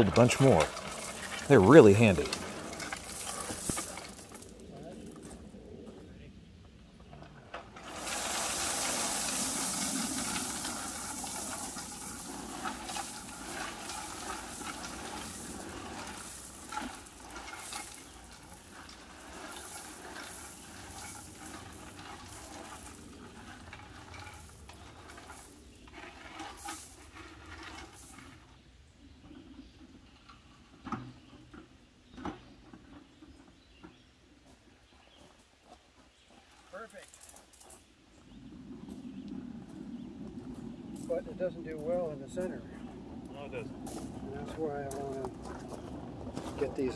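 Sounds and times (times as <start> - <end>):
stones pouring with rushing rattle: 0.0 - 5.3, 7.8 - 28.4
stones clicking: 0.6 - 4.6.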